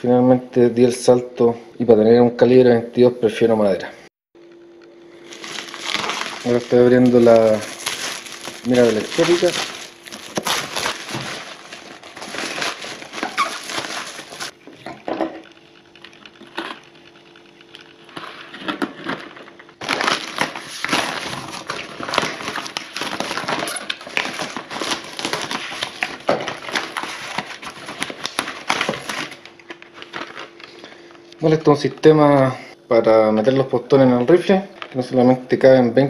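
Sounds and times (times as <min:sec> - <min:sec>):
packaging crinkling and tearing: 0:05.2 - 0:14.6, 0:16.0 - 0:31.0.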